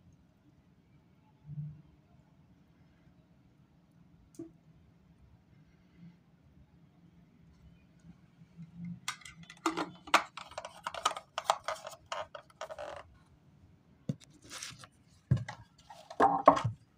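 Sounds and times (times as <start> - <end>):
clicking and rustling objects: 9.1 - 13.2, 14.1 - 16.9.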